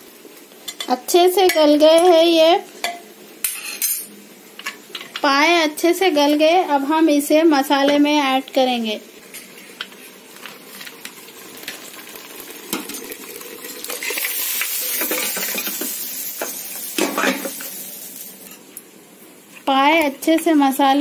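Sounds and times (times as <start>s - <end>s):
oil sizzling: 0.0s - 21.0s
metal pots and spoon clinking: 14.0s - 17.8s.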